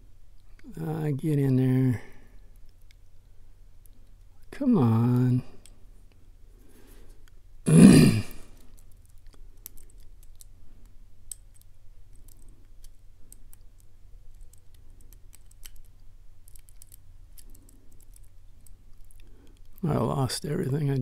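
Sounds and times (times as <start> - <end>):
steady low hum: 0.0 - 21.0
metallic clicks of lock picking: 8.6 - 10.5, 11.2 - 19.8.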